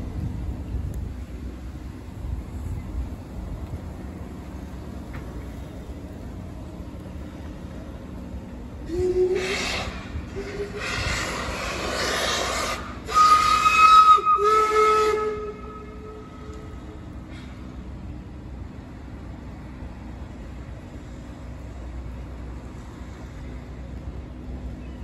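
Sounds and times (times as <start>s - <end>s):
steam whistle: 8.8s - 16.8s
steam hissing bursts: 8.9s - 15.4s.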